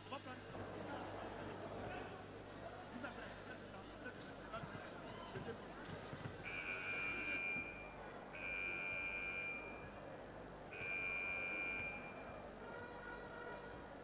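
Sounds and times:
high-pitched whistle blasts: 6.5s - 10.0s, 10.7s - 13.0s.

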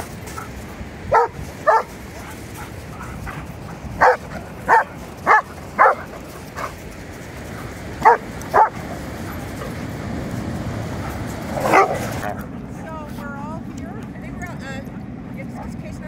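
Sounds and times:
dog barking: 1.1s - 3.4s, 4.0s - 6.7s, 8.0s - 9.8s, 11.6s - 12.3s.

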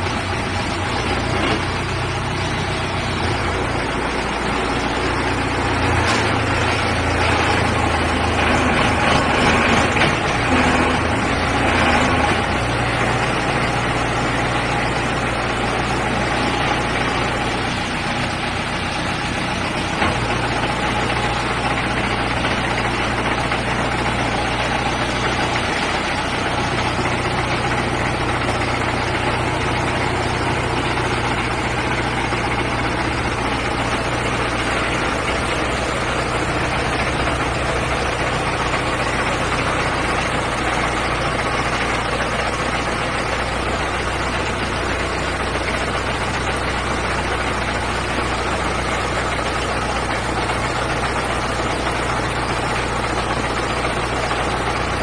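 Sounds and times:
drilling rig engine idling: 0.0s - 55.0s.

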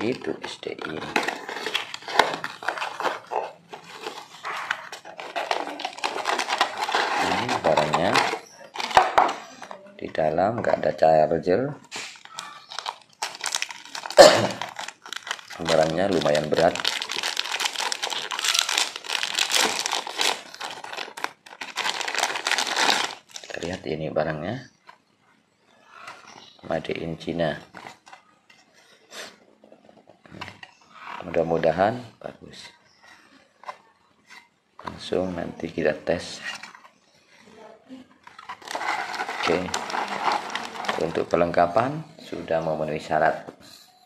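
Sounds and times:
cardboard box and bag rustling: 0.0s - 9.1s, 38.3s - 41.4s
plastic bag crinkling: 0.0s - 9.6s, 12.0s - 23.8s, 38.3s - 41.9s.

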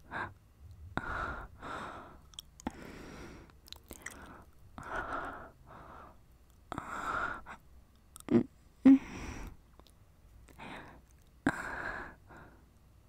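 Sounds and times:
woman breathing out: 1.0s - 7.6s, 8.8s - 9.6s.

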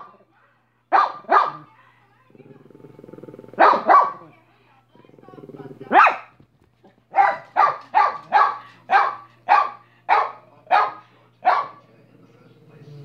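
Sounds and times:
small dog barking: 0.9s - 1.7s, 3.5s - 4.3s, 5.9s - 6.4s, 7.1s - 11.8s.

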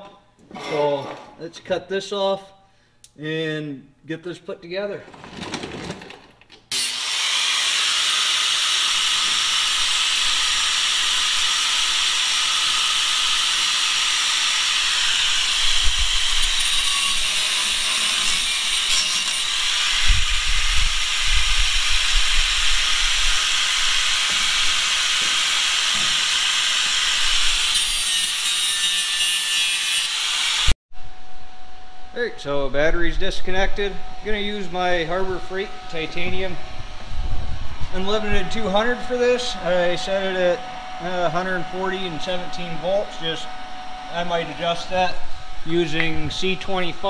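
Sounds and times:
angle grinder cutting pipe: 6.7s - 30.8s.

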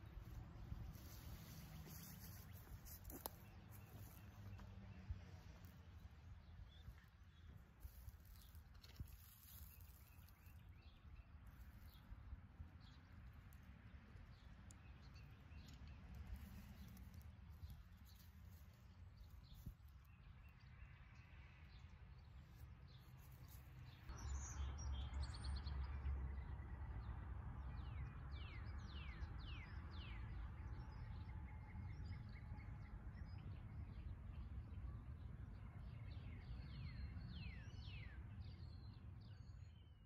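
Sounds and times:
small birds chirping: 0.0s - 25.7s.

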